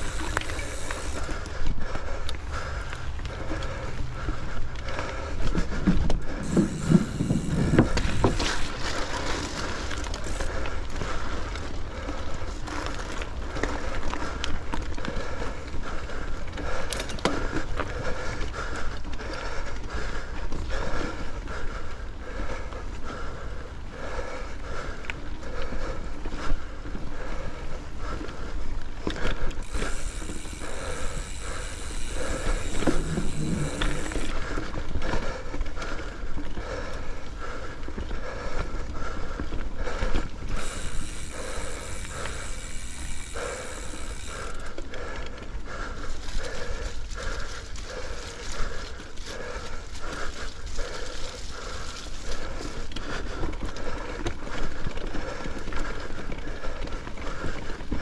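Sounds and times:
bike rattling and knocking: 0:00.0 - 0:20.0, 0:29.0 - 0:36.0, 0:39.4 - 0:46.6
bike tyres rolling on dirt: 0:00.0 - 0:58.0.

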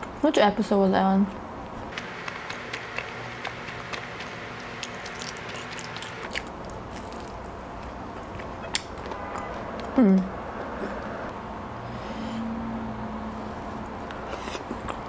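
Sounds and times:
person chewing food: 0:01.9 - 0:08.5
wet mouth clicks: 0:02.0 - 0:06.4.

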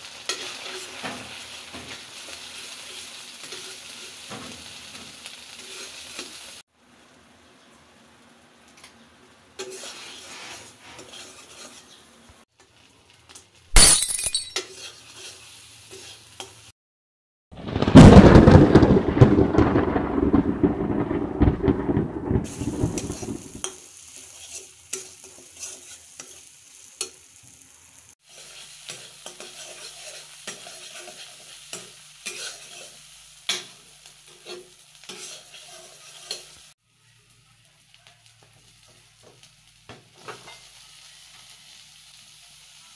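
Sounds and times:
steel spatula scraping a pan: 0:00.0 - 0:06.4, 0:09.6 - 0:12.2, 0:14.6 - 0:16.6, 0:23.0 - 0:27.2, 0:28.2 - 0:36.7, 0:40.2 - 0:41.5
sauce sizzling in hot oil: 0:00.0 - 0:13.8, 0:14.6 - 0:16.8, 0:22.4 - 0:42.9.

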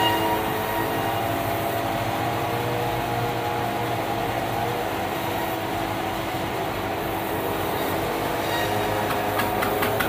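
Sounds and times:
sawmill mechanical hum: 0:00.0 - 0:10.0
sharp knocks and clatter: 0:09.0 - 0:10.0.

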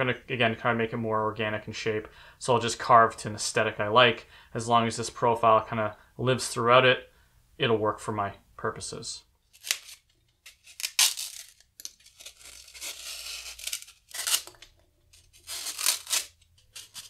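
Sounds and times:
knife cutting foam: 0:09.6 - 0:17.0.

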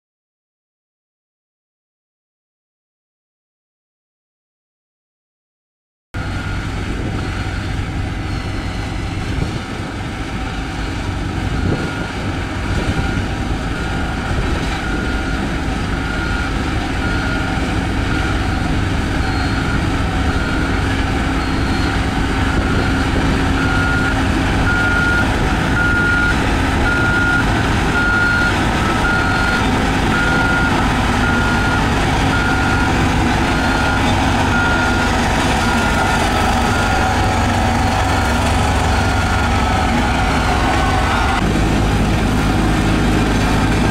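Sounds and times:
reversing alarm beeping: 0:06.2 - 0:41.4
diesel engine running: 0:06.2 - 0:43.9.

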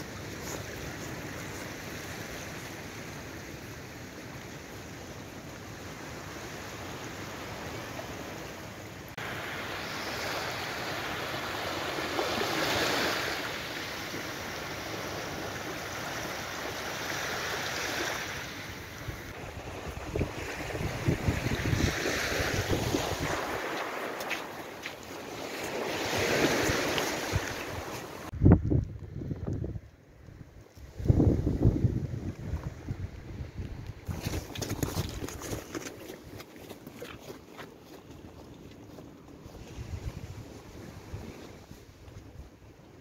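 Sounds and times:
small waves washing on shore: 0:00.0 - 0:28.4, 0:30.7 - 0:43.0
wind buffeting microphone: 0:19.0 - 0:23.9, 0:26.1 - 0:35.9.

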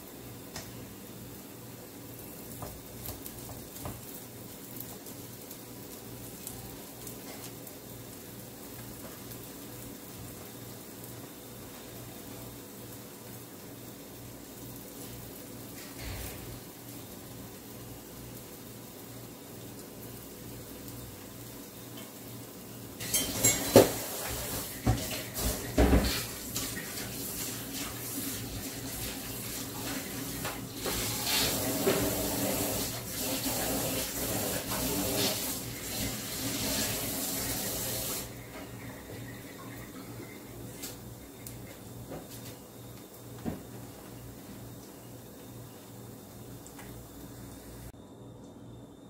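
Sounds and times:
kitchen tap running: 0:22.9 - 0:42.2
dishes and utensils clinking: 0:23.0 - 0:27.0.

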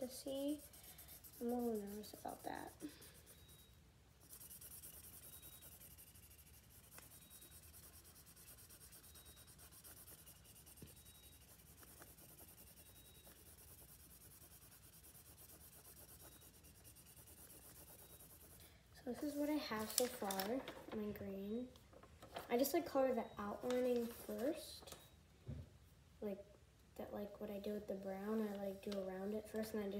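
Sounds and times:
marker scratching on paper: 0:00.0 - 0:20.3.

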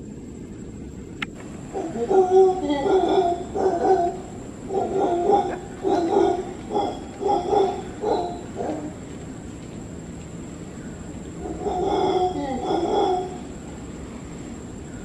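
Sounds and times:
howler monkey barking: 0:01.5 - 0:09.1, 0:11.4 - 0:13.8.

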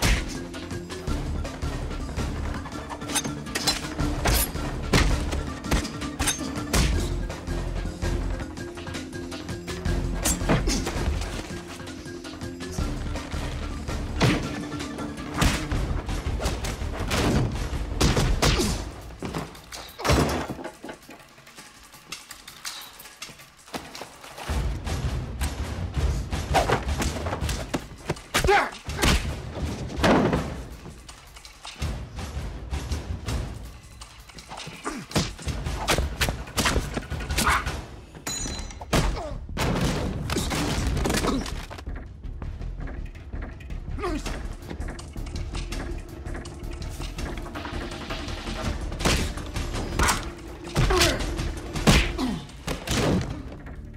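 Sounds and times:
film score music: 0:00.0 - 0:53.9
punches and thuds: 0:06.7 - 0:07.1, 0:14.2 - 0:14.6, 0:15.3 - 0:20.6, 0:38.9 - 0:41.5, 0:50.8 - 0:53.5.

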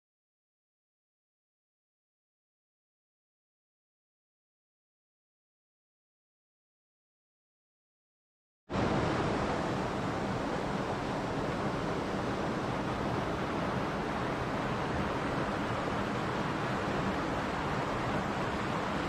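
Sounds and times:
stream rushing over rocks: 0:08.8 - 0:19.0.

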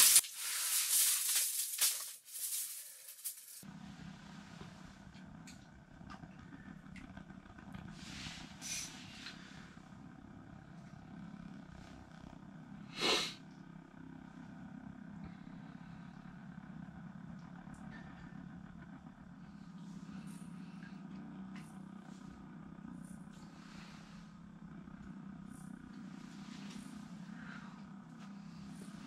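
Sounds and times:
heater humming: 0:00.0 - 0:29.0.

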